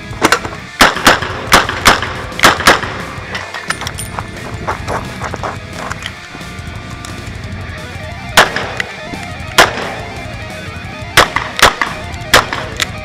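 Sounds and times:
rock music: 0.0s - 13.0s
revolver gunshots: 0.2s - 3.3s, 8.2s - 13.0s.

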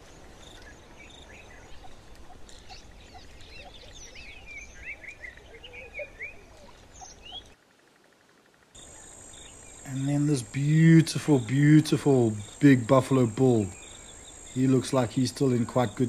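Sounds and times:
low wind rumble: 0.0s - 7.6s
birds chirping and calling: 0.1s - 7.6s, 8.8s - 16.0s.

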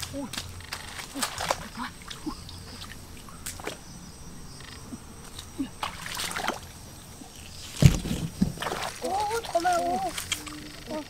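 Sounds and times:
feet wading through water: 0.0s - 3.9s, 5.2s - 10.5s
sharp water splashes: 0.0s - 3.9s, 5.4s - 6.8s, 7.5s - 10.5s.

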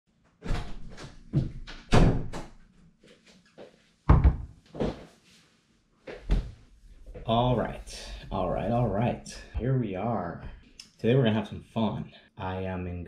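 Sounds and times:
thumps and knocks at a desk: 4.1s - 5.0s.

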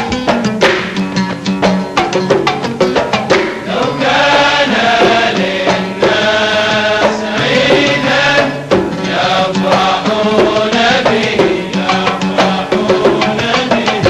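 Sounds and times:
oud: 0.0s - 14.0s
sharp percussion strikes: 0.0s - 14.0s
men singing: 3.6s - 14.0s.

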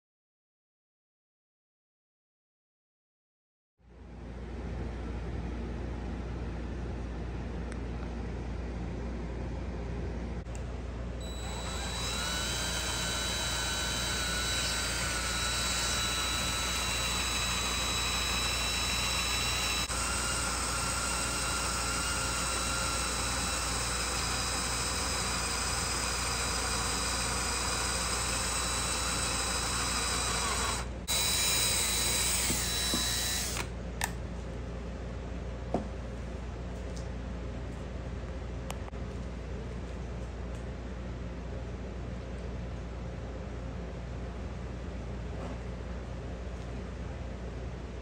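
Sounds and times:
power tool whining: 11.2s - 33.7s.

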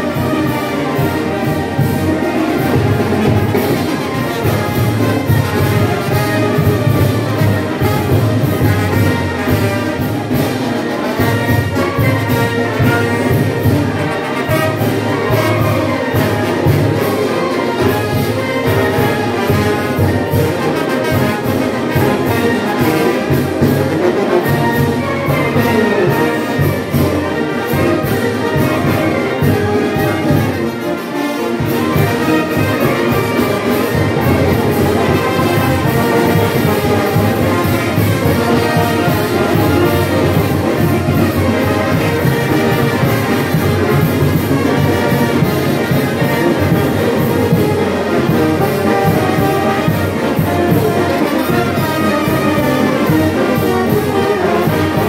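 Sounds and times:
brass band playing: 0.0s - 55.0s
steady drum beat: 31.6s - 55.0s.

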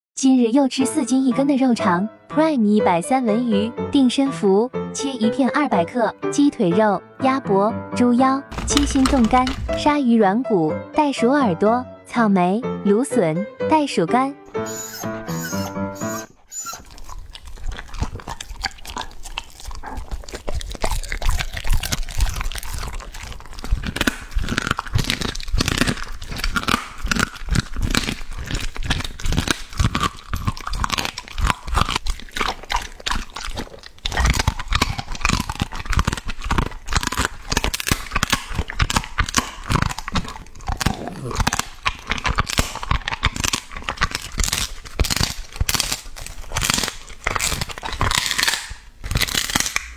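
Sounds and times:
dog crunching dried treats: 8.5s - 10.0s, 14.7s - 49.9s.

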